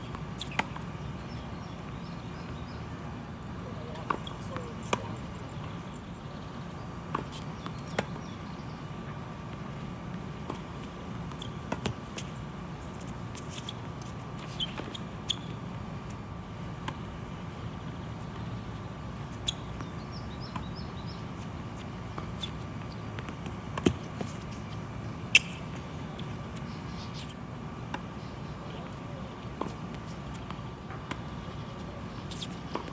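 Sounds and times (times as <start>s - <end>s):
tennis racket hits and ball bounces: 22.2s - 25.8s.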